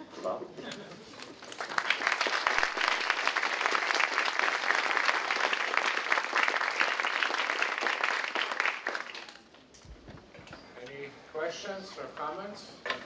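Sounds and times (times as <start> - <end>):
audience applauding: 1.3 - 9.5.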